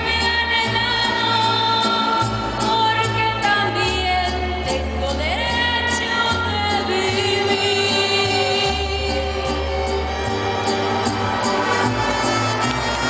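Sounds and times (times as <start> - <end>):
woman singing into a microphone: 0.0 - 10.0
mariachi band playing: 0.0 - 13.0.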